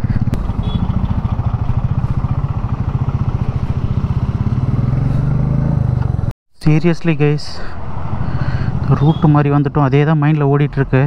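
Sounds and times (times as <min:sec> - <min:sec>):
motorcycle engine running: 0:00.0 - 0:06.3, 0:07.8 - 0:09.4.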